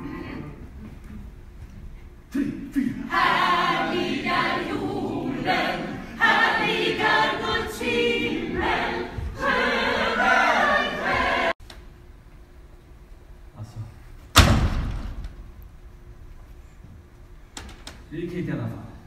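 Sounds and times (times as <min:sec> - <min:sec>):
group singing in chorus: 0:02.3 - 0:11.6.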